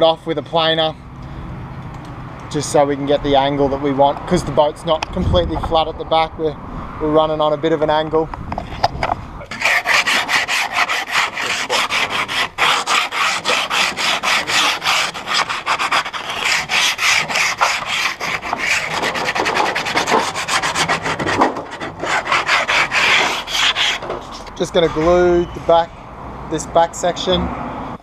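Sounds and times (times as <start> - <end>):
tool rasping over wood: 9.5 - 25.0.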